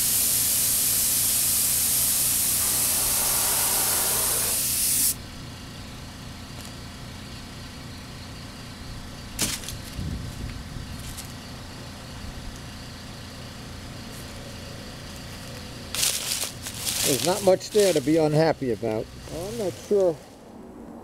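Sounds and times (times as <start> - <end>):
spray gun hissing: 0.0 - 5.2
low steady rumble: 5.2 - 21.0.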